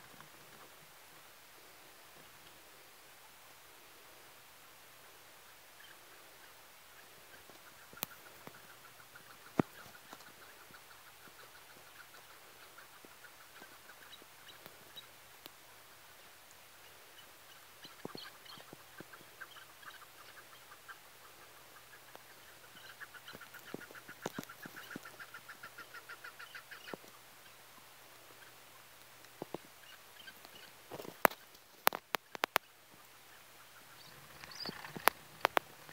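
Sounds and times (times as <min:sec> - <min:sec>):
partridges calling: 0:05.4 - 0:35.9.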